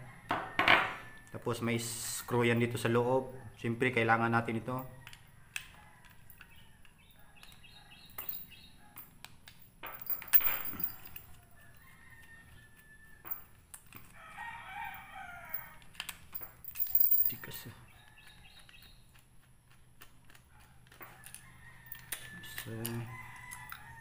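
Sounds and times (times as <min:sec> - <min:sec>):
rooster crowing: 0:00.0 - 0:01.3, 0:11.2 - 0:13.5, 0:14.1 - 0:15.8, 0:21.1 - 0:24.0.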